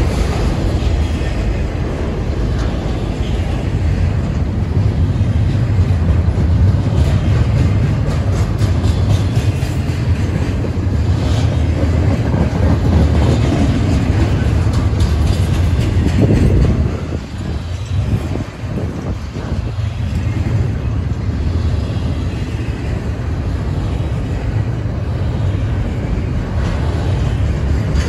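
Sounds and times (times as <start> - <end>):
train wheels rumbling on rail: 0.0 - 28.0
wheels clicking over rail joints: 0.0 - 28.0.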